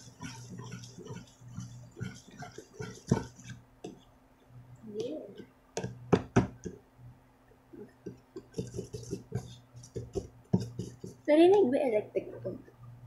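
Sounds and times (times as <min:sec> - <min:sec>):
spoon tapping plastic tub: 0:00.0 - 0:04.1, 0:05.0 - 0:06.8, 0:08.0 - 0:11.6
spoon stirring sticky slime: 0:00.0 - 0:06.8, 0:08.0 - 0:11.4
electric fan hum: 0:00.0 - 0:13.0.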